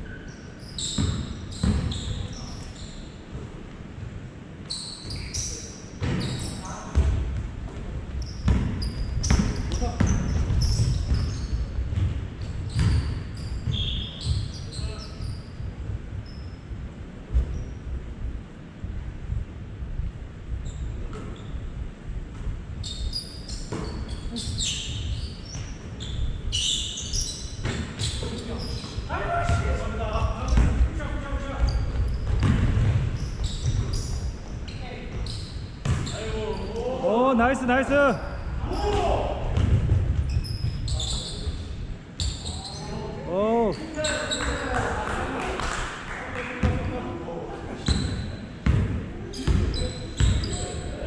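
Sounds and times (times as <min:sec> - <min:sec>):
sneaker squeaks: 0:00.0 - 0:03.4, 0:04.6 - 0:07.3, 0:08.1 - 0:16.7, 0:17.3 - 0:17.8, 0:20.6 - 0:21.8, 0:22.8 - 0:37.0, 0:38.1 - 0:44.7, 0:47.7 - 0:51.0
basketball bouncing on hardwood floor: 0:01.0 - 0:01.9, 0:08.4 - 0:12.2, 0:30.5 - 0:30.8, 0:31.9 - 0:34.1, 0:35.8 - 0:36.1, 0:48.6 - 0:50.5.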